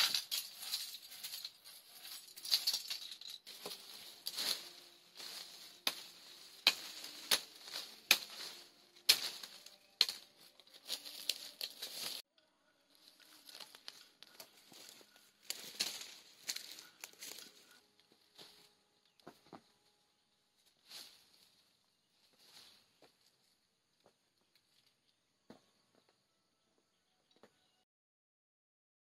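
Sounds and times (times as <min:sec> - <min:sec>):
rustling: 0:00.0 - 0:12.2, 0:13.0 - 0:19.5.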